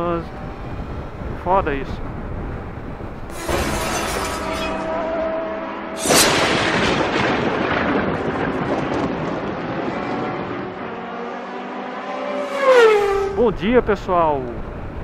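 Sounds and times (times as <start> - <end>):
explosion-like boom: 6.0 - 10.0.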